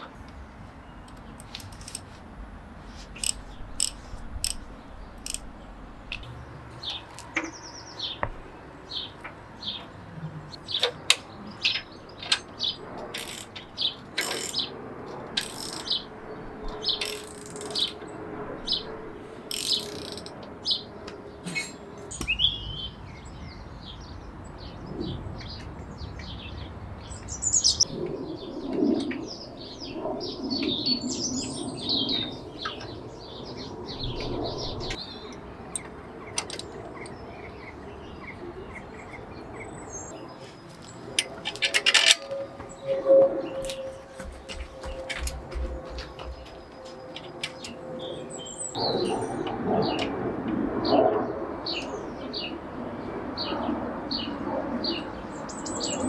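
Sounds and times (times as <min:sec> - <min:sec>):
songbirds chirping and singing: 0:02.9 - 0:50.2, 0:53.4 - 0:56.0
metallic clicks of hand tools: 0:03.2 - 0:04.6, 0:05.2 - 0:05.5, 0:19.5 - 0:20.4, 0:35.7 - 0:37.1.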